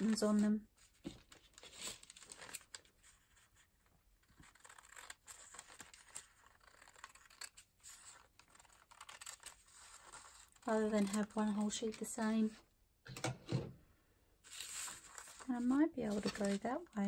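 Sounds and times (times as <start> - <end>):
paper rustling: 0.0 - 12.5, 14.4 - 17.0
scissors snipping paper: 4.4 - 12.0.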